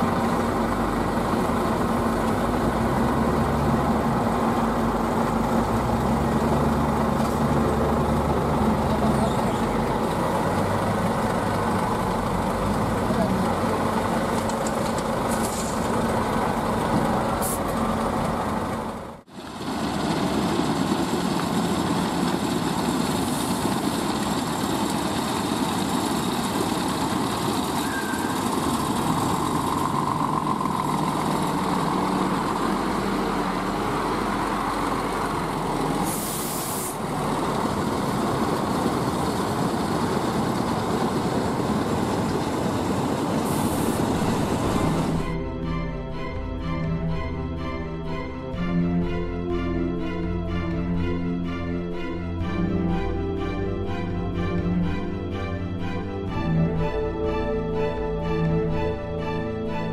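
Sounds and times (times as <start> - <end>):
diesel truck engine running: 0.0 - 59.9
loader engine running: 0.0 - 59.9
air brake hiss: 15.3 - 15.9, 36.0 - 37.0, 43.4 - 44.2.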